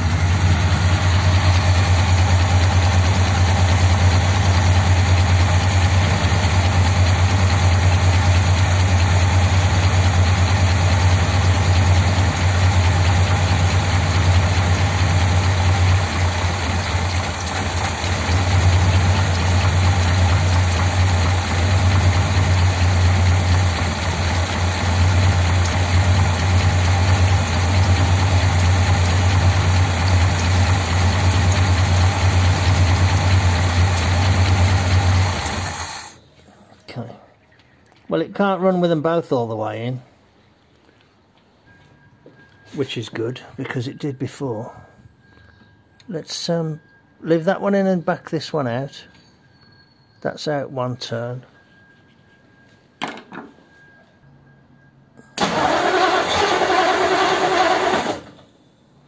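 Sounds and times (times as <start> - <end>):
car engine idling: 0.0 - 36.2.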